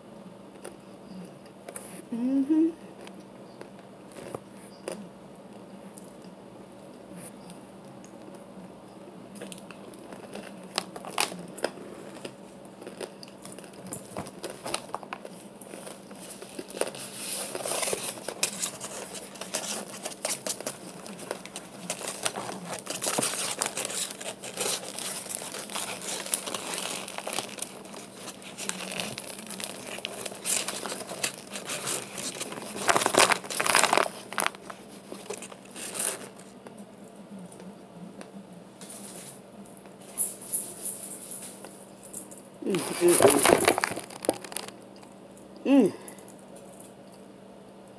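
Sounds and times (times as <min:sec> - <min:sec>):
paper package crinkling and tearing: 0:09.5 - 0:36.6, 0:42.6 - 0:44.8
starch crumbling into plastic tub: 0:43.0 - 0:44.8.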